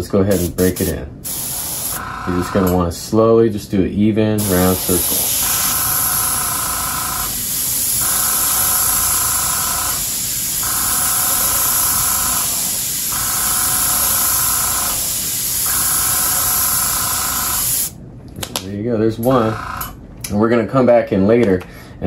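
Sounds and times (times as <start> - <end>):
airbrush hissing: 1.2 - 2.7, 4.4 - 18.0.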